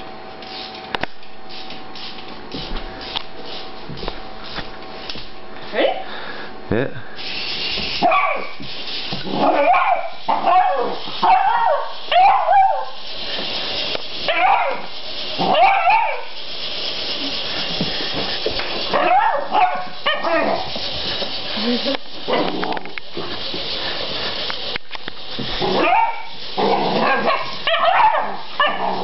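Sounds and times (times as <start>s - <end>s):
steady hiss: 6.4s - 29.0s
dog barking and yelping: 8.0s - 8.6s, 9.3s - 13.0s, 14.3s - 16.3s, 18.9s - 20.7s, 25.6s - 29.0s.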